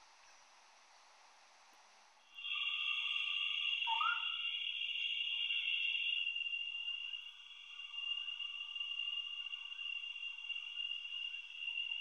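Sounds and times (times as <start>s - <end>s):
high-pitched insect chorus: 2.3s - 12.0s
short rising whistled call: 2.4s - 4.9s.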